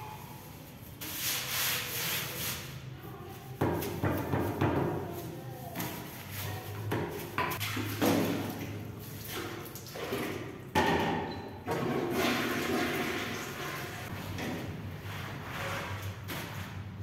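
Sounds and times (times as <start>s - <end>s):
broom scrubbing wet tile floor: 0.0s - 10.5s, 11.8s - 14.4s, 15.0s - 16.9s
squeegee sweeping water: 0.3s - 2.9s, 5.2s - 10.5s, 11.8s - 14.4s
water splashing onto floor: 7.5s - 10.5s.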